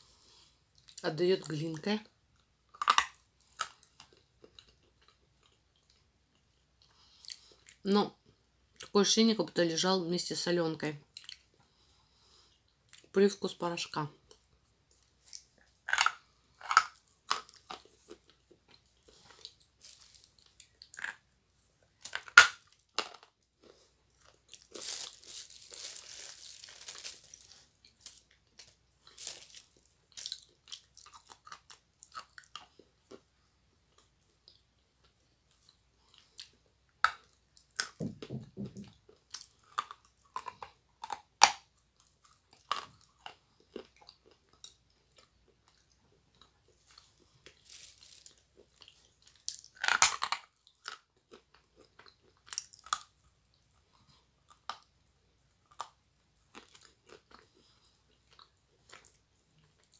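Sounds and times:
soft scratchy hiss: 0.0 - 38.0, 38.8 - 59.9
chewing: 2.4 - 7.8, 11.1 - 11.9, 14.2 - 21.3, 38.8 - 54.9, 55.5 - 59.9
teeth crunching hard clay: 2.7 - 5.2, 15.3 - 21.3, 22.0 - 26.7, 37.0 - 45.9, 47.0 - 53.2.

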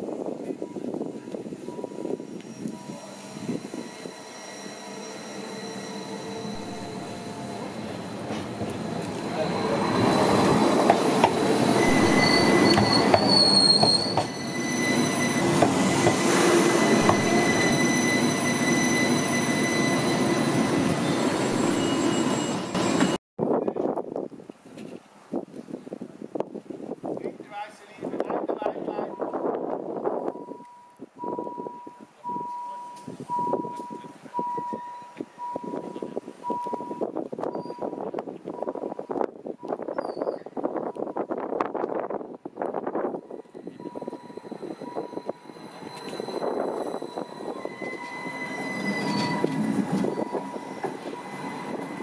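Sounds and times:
train rumble: 0.0 - 23.2, 40.6 - 52.0
train wheels squealing: 1.6 - 8.4, 9.0 - 23.2, 30.3 - 38.0, 39.9 - 40.6, 43.2 - 52.0.

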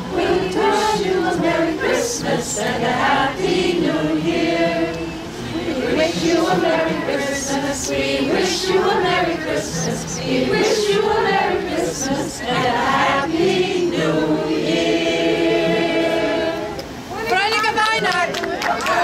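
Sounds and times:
group singing a carol: 0.0 - 17.1.

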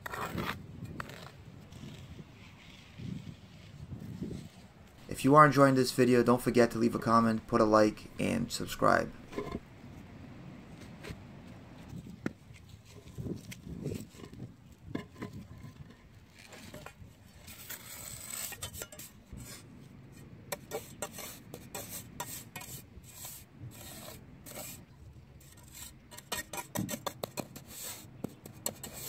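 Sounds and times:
trowel scraping sand: 0.0 - 4.7, 15.2 - 29.0.

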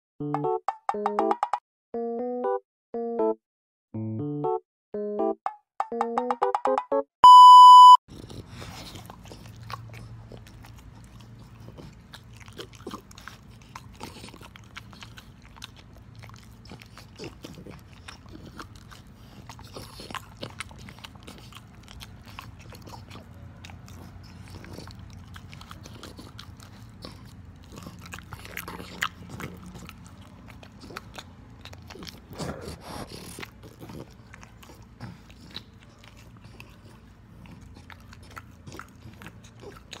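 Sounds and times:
loud steady beep: 7.2 - 8.0
dog chewing and lip-smacking: 8.1 - 40.0.

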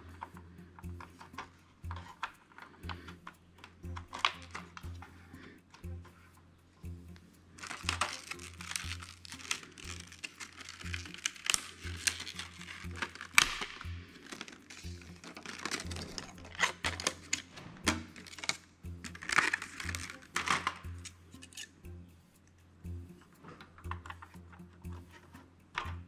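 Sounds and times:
background music: 0.0 - 26.0
plastic packaging crinkling: 7.6 - 17.5, 18.2 - 20.8
plastic packaging snapping: 7.6 - 20.8.

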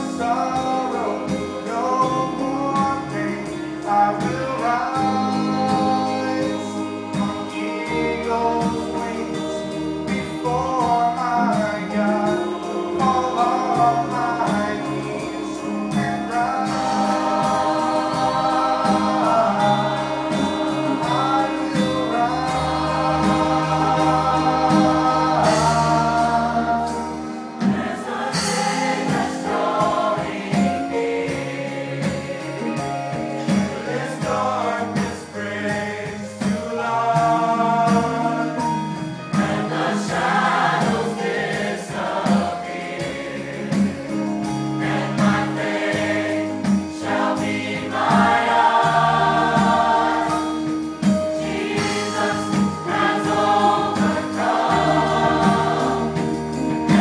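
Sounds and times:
man singing solo: 0.0 - 27.4, 32.6 - 39.7
gospel choir singing: 0.0 - 57.0
low instrumental accompaniment: 0.0 - 57.0.

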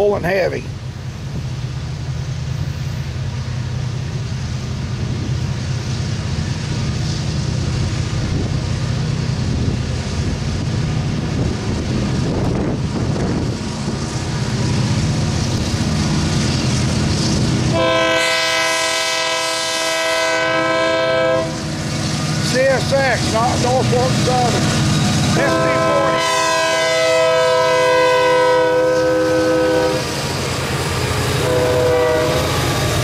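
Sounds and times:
diesel locomotive engine drone: 0.0 - 33.0
locomotive horn: 17.7 - 21.7, 25.3 - 30.2, 31.4 - 32.8.

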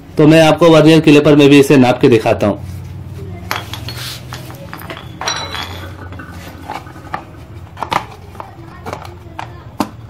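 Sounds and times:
metal tools clinking on concrete: 3.4 - 9.0.

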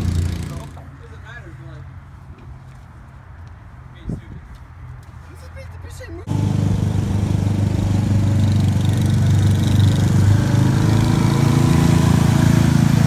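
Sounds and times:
small vehicle engine running: 6.3 - 13.0.

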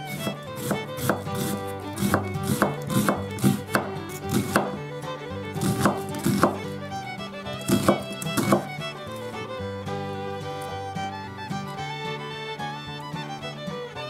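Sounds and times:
knife slicing onion on board: 0.0 - 4.8, 5.6 - 6.7, 7.6 - 8.7
light background music: 0.0 - 14.0.

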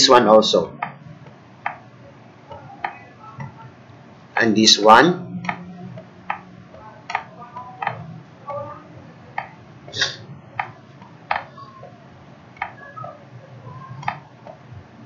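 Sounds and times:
low hum: 0.0 - 15.0
sharp clicks and taps: 0.8 - 1.8, 5.4 - 8.0, 9.4 - 10.0, 10.6 - 12.0, 14.0 - 14.6.

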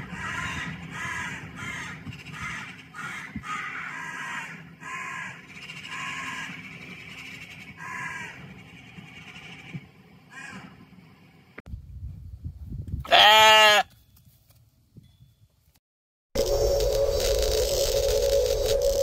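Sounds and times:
crows cawing: 0.0 - 6.7, 7.8 - 8.5, 10.3 - 10.8.

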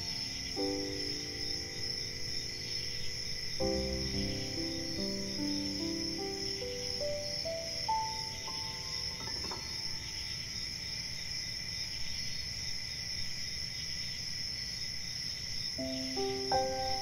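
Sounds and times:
gentle melody notes: 0.0 - 10.4, 15.8 - 17.0
crickets and insects chirring: 0.0 - 17.0
low background hiss: 0.0 - 17.0.

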